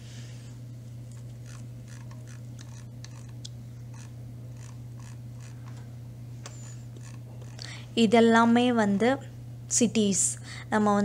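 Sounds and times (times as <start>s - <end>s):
low electrical hum: 0.0s - 11.0s
mouse scroll wheel clicking: 1.5s - 5.6s.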